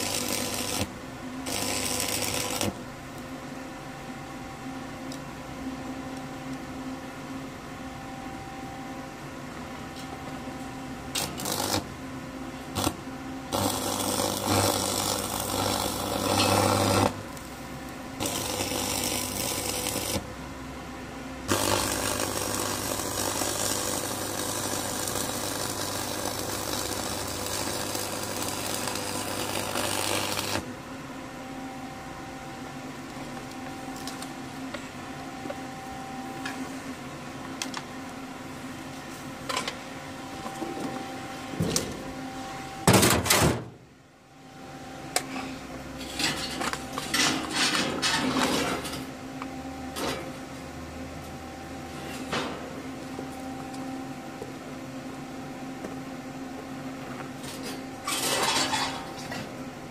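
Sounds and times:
electric welding arc crackling: 0:00.0 - 0:02.8, 0:11.1 - 0:11.9, 0:12.7 - 0:20.3, 0:21.5 - 0:30.6.

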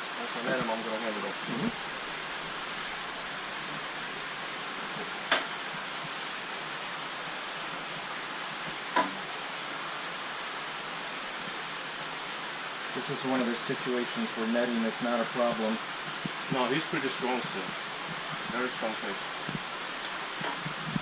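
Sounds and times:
water rushing in aquarium: 0:00.0 - 0:21.0
sharp knocks: 0:08.9 - 0:09.2.

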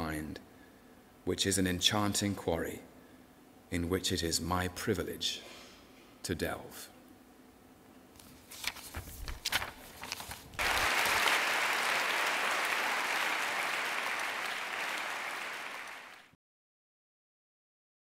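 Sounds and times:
audience applauding: 0:10.6 - 0:16.4.

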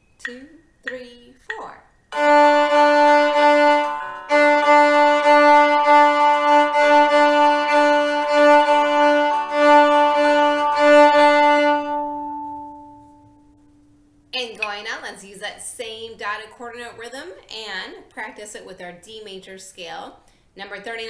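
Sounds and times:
bowed viola: 0:02.2 - 0:13.6.

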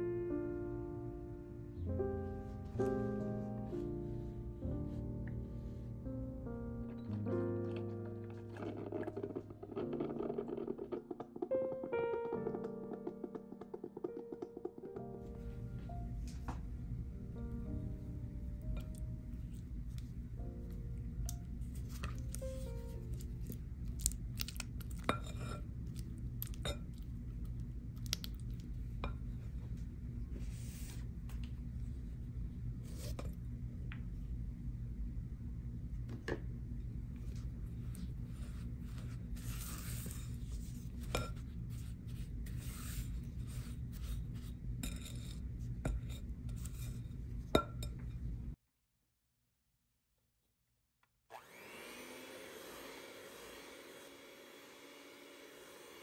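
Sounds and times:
butter squishing: 0:21.3 - 0:29.0
spatula scraping glass bowl: 0:25.0 - 0:25.6, 0:38.5 - 0:47.2.

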